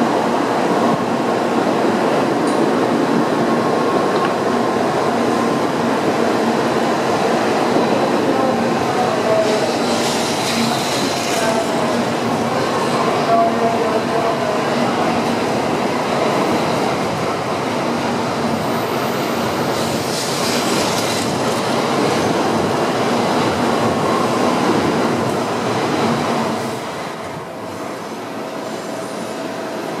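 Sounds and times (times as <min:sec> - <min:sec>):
train running past: 0:00.0 - 0:30.0.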